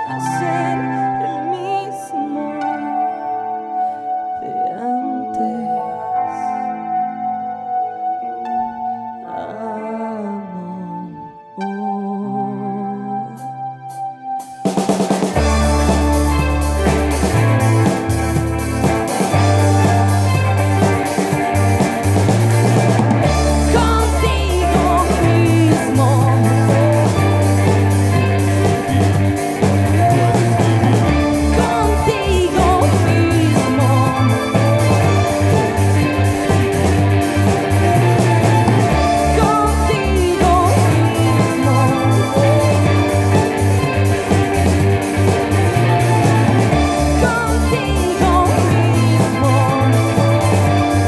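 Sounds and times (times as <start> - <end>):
live rock band playing: 0.0 - 1.8, 13.4 - 51.0
man singing: 23.8 - 27.8, 31.4 - 35.0.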